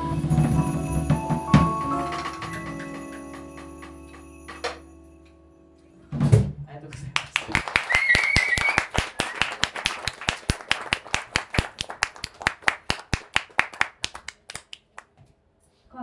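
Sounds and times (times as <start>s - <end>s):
audience clapping: 7.0s - 15.2s
short high whistle: 7.9s - 9.5s.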